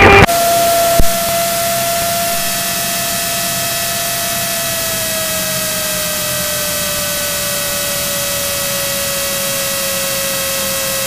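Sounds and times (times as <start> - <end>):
aircraft engine and propeller drone: 0.0 - 11.0.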